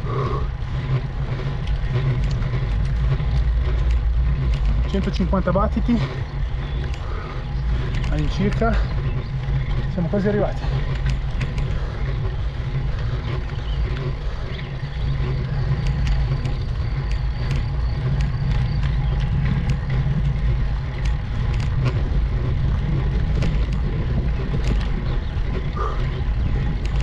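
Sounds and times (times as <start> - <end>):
road and wind rumble: 0.0 - 27.0.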